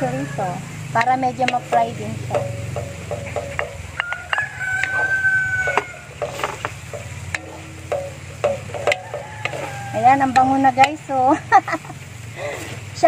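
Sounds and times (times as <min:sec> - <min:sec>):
rooster crowing: 0:00.0 - 0:00.8, 0:03.9 - 0:06.6, 0:08.6 - 0:10.4
wooden spatula stirring in wok: 0:00.8 - 0:13.0.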